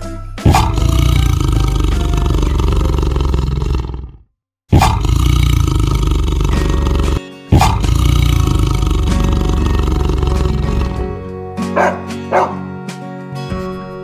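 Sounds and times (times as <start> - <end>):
large animal roaring: 0.5 - 11.2.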